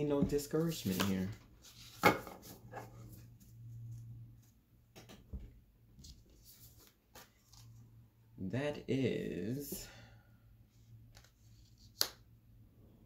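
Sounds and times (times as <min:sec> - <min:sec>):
low steady hum: 0:00.0 - 0:13.0
cards tapping and rustling: 0:00.3 - 0:02.5.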